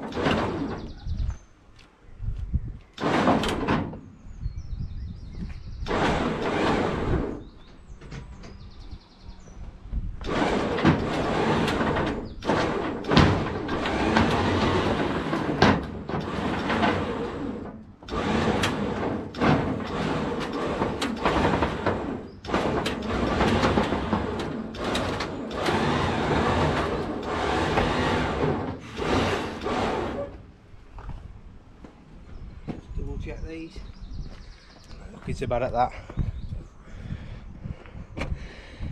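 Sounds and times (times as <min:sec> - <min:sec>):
car scraping up metal ramps: 0:00.0 - 0:01.2, 0:03.0 - 0:04.2, 0:05.8 - 0:08.4, 0:10.2 - 0:30.5.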